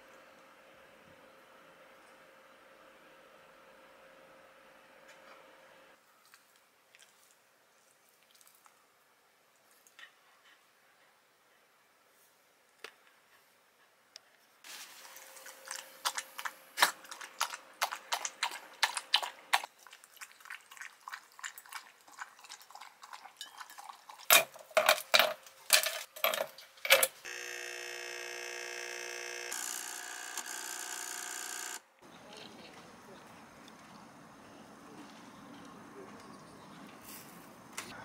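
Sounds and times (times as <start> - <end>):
dog lapping water: 15.3 - 24.8
ice cubes clattering into metal cup: 24.3 - 27.1
espresso machine pump buzzing: 27.2 - 31.9.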